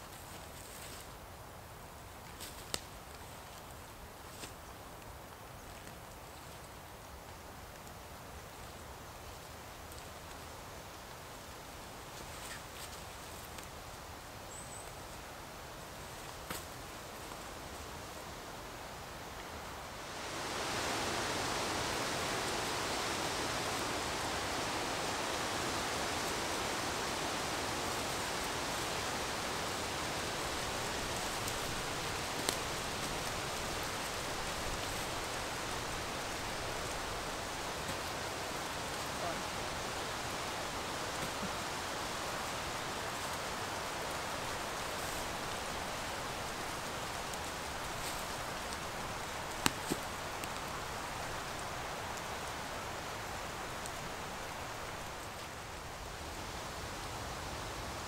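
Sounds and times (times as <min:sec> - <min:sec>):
steady rushing noise: 0:19.6 - 0:51.7.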